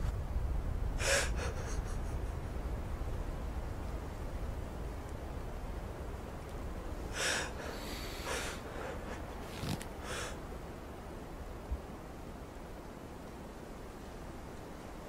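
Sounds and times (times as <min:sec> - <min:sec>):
low steady rumble: 0:00.0 - 0:15.0
man crying: 0:01.0 - 0:02.3.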